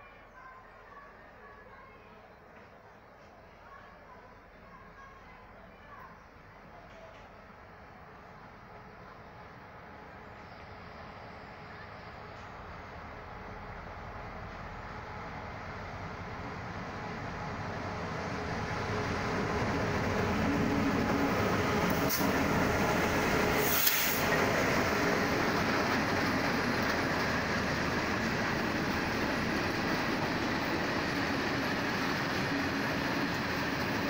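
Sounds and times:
diesel locomotives passing: 4.2 - 34.0.

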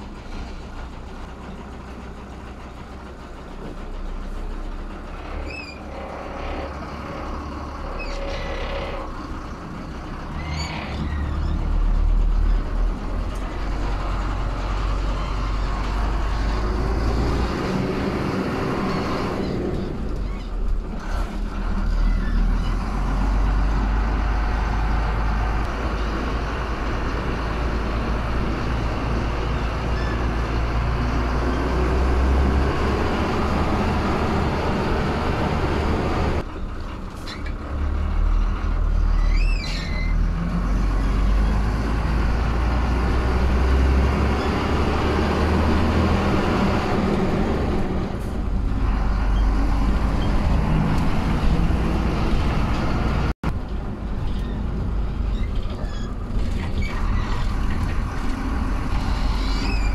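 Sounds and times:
bus diesel engine running: 0.0 - 59.9
road noise: 0.0 - 59.9
short high squeak: 5.4 - 6.7, 10.4 - 11.6, 29.9 - 30.3, 39.1 - 40.2, 59.0 - 59.9.

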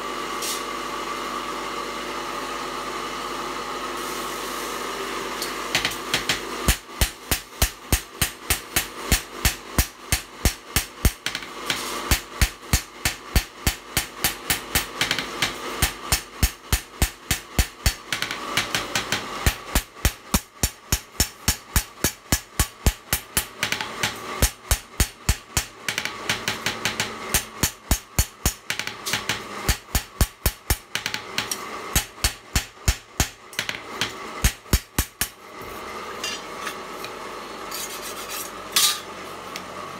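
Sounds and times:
hammer striking metal blade: 5.4 - 35.4, 36.2 - 37.9, 38.7 - 39.1.

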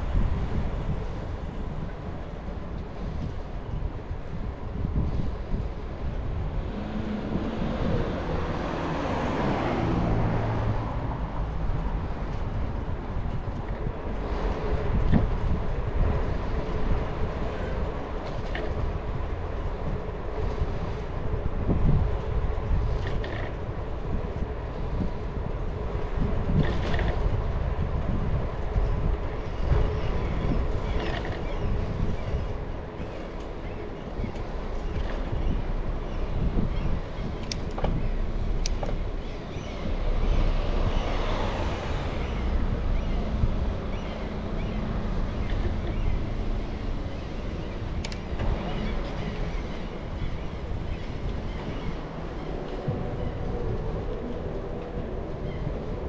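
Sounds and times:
bicycle tyres rolling on path: 0.0 - 56.0
wind on microphone: 0.0 - 56.0
motor vehicle passing by: 6.6 - 12.1, 39.2 - 54.7.

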